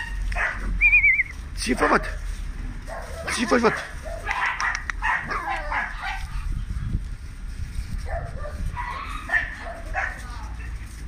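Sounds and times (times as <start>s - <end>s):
puppies whining and yipping: 0.0s - 1.4s, 8.0s - 11.0s.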